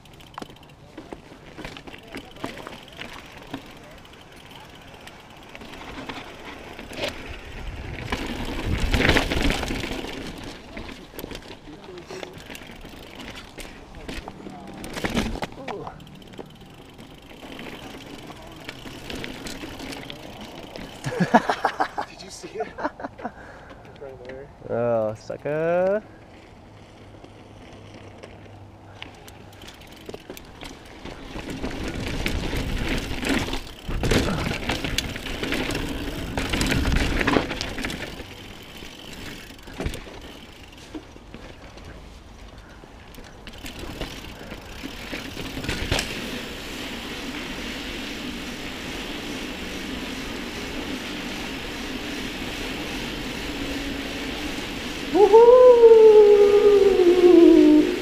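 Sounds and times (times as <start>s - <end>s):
bike knocks and rattles: 0.0s - 21.8s, 29.2s - 46.6s
bike tyres rolling on dirt trail: 0.0s - 58.0s.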